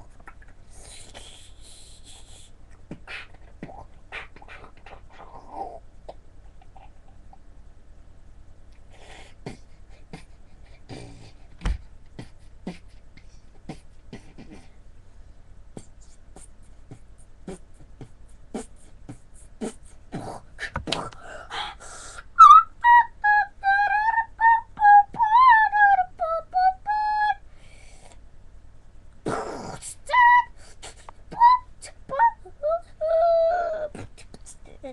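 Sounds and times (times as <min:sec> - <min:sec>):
high wavering beatbox melody: 0:00.0 - 0:06.9, 0:12.0 - 0:14.8, 0:15.7 - 0:21.2, 0:29.3 - 0:34.9
beatboxing mouth percussion: 0:00.0 - 0:07.4, 0:08.9 - 0:14.8, 0:15.7 - 0:21.3, 0:29.2 - 0:33.0, 0:33.9 - 0:34.9.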